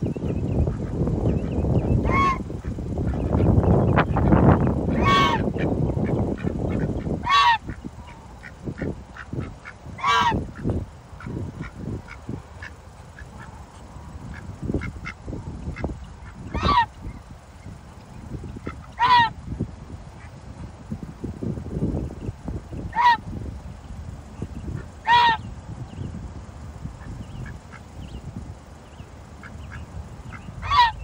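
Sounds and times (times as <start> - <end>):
geese honking: 2.0 - 3.5, 4.2 - 13.5, 14.3 - 17.0, 18.6 - 19.4, 22.9 - 23.2, 24.7 - 25.4, 29.7 - 31.0.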